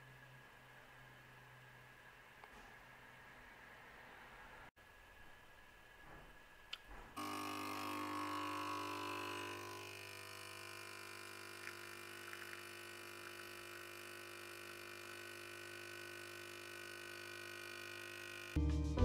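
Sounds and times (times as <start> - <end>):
espresso machine pump buzzing: 7.2 - 18.6
espresso pouring into cup: 7.2 - 18.6.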